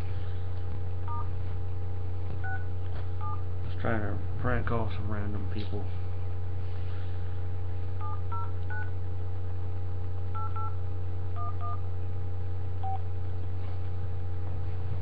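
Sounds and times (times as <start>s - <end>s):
steady low hum: 0.0s - 15.0s
touch-tone keypad beeps: 8.0s - 8.9s, 10.4s - 10.8s, 11.4s - 11.8s.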